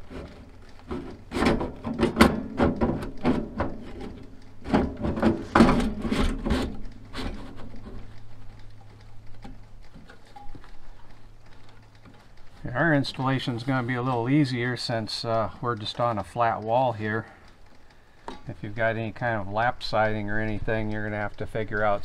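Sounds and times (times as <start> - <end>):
metal scrapes and knocks: 0.0 - 8.0
faint metal taps: 18.2 - 18.5.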